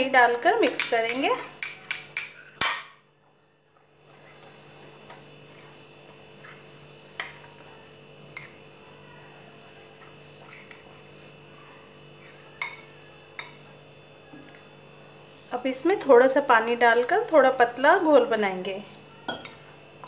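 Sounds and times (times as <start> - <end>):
electrical hum: 0.0 - 20.0
spoon clinking against glass bowl: 0.6 - 3.0, 12.6 - 13.7, 19.3 - 19.6.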